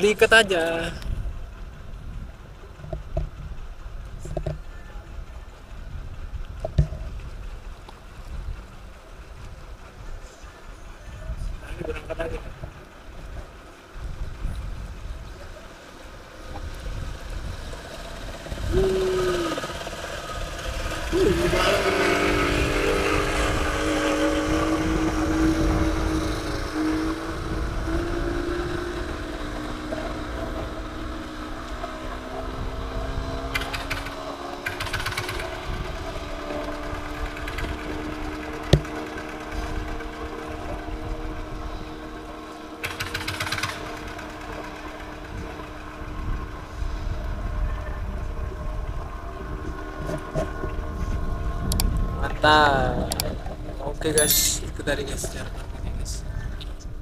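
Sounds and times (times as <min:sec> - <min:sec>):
boat engine running: 0:00.0 - 0:29.8, 0:34.8 - 0:42.2.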